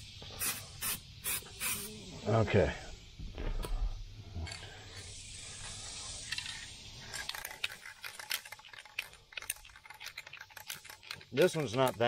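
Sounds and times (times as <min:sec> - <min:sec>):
aerosol spray can hissing: 0:00.0 - 0:02.2, 0:04.7 - 0:08.0.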